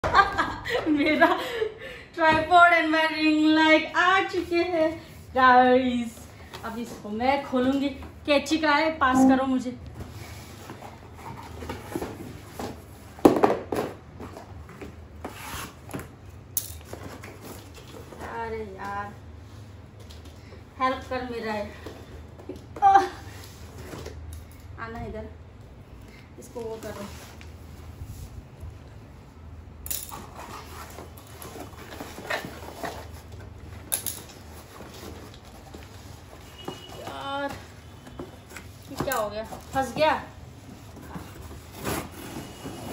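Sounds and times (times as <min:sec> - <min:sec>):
cardboard scraping and rustling: 0:30.2 - 0:33.8, 0:34.4 - 0:42.9
cardboard box scraping and rustling: 0:39.4 - 0:42.9.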